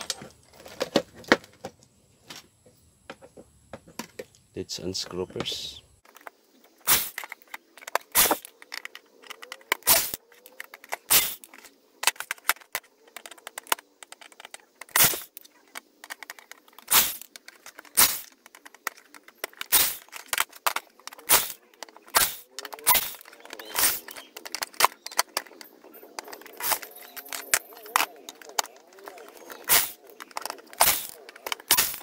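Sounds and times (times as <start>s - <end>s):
sharp metallic clicks and clinks: 6.1s - 32.0s
drill motor whirring: 21.1s - 24.2s, 26.6s - 27.0s, 29.6s - 32.0s.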